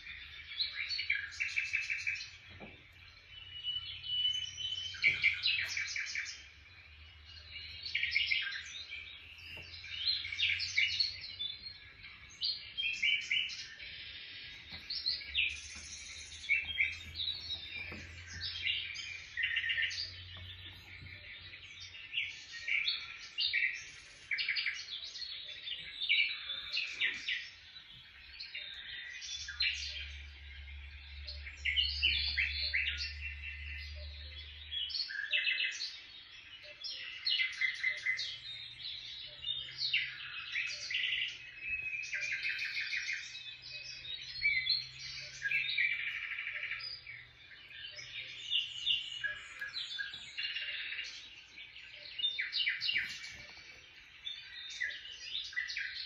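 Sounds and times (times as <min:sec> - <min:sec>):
birds chirping and twittering: 0:00.0 - 0:56.0.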